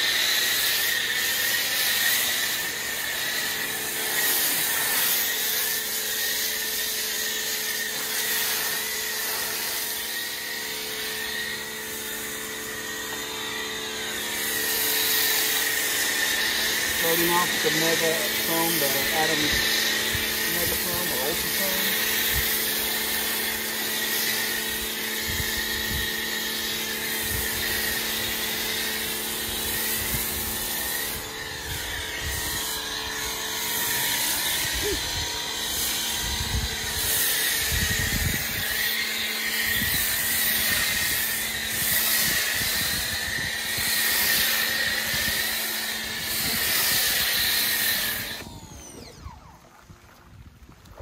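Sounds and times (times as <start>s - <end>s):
foam cannon hissing: 0.0s - 23.8s
pressure washer humming: 0.0s - 49.9s.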